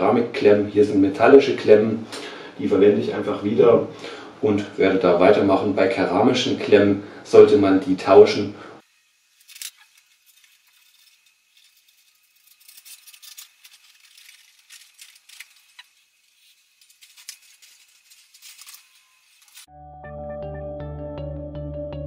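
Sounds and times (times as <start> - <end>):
metallic wire rattling and clicks: 9.4 - 19.7.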